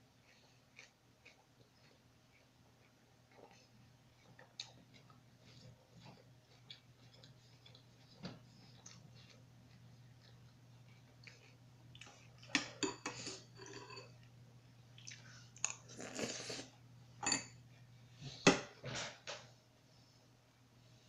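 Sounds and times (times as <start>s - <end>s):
slurping and chewing: 0.2s - 14.2s, 15.0s - 16.8s.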